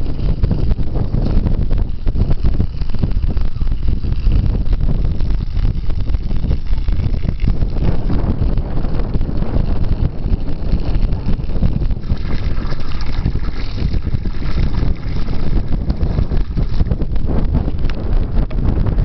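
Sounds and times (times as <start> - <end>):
wind buffeting microphone: 0.0 - 19.0
water splashing into metal pot: 12.0 - 16.8.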